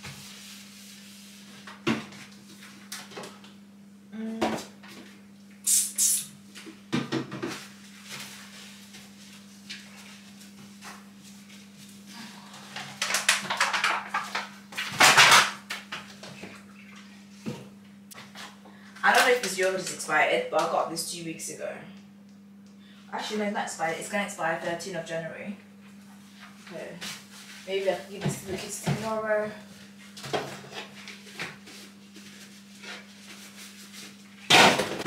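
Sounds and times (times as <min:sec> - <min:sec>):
short hiss: 0:05.6 - 0:06.3
items knocking on fridge shelves: 0:06.9 - 0:07.6.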